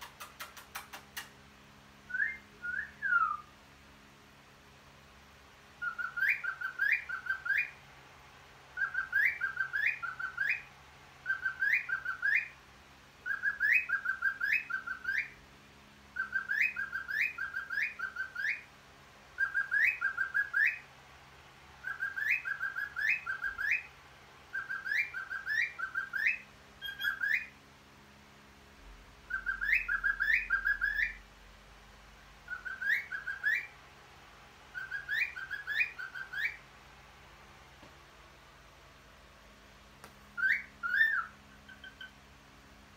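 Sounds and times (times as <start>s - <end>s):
cockatiel whistling: 2.1s - 3.5s, 5.8s - 7.8s, 8.8s - 12.6s, 13.2s - 15.4s, 16.2s - 18.7s, 19.4s - 20.8s, 21.8s - 23.9s, 24.5s - 27.5s, 29.3s - 31.2s, 32.5s - 33.7s, 34.7s - 36.6s, 40.4s - 42.1s.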